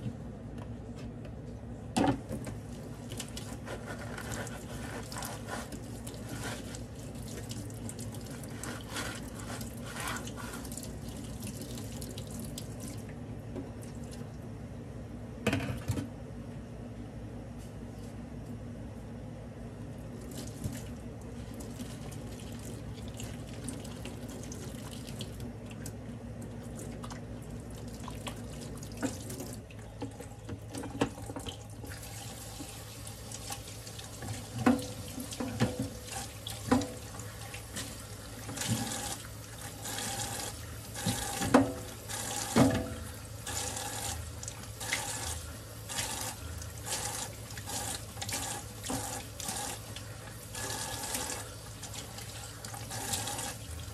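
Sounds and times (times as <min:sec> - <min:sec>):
faucet running into sink: 0:28.2 - 0:53.9.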